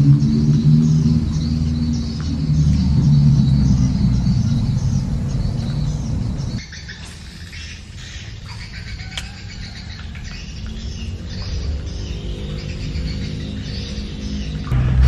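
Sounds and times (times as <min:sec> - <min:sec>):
loud low rumble: 0:00.0 - 0:06.6, 0:12.1 - 0:15.0
small birds chirping: 0:00.0 - 0:15.0.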